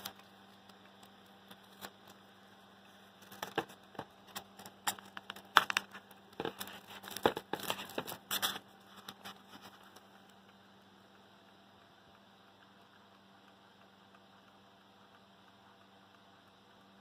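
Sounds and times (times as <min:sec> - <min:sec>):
insulating wrap crinkling: 0:03.0 - 0:10.1.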